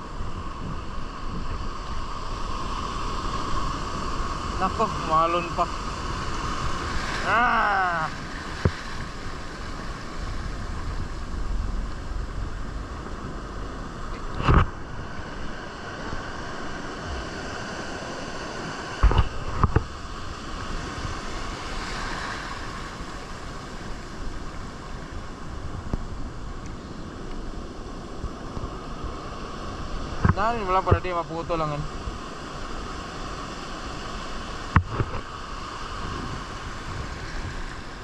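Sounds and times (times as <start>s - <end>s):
sea waves washing on shore: 0.0s - 38.0s
wind on microphone: 0.0s - 38.0s.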